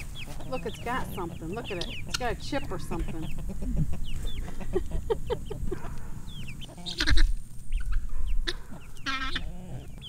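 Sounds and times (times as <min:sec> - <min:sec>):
chickens squawking: 0:00.0 - 0:10.0.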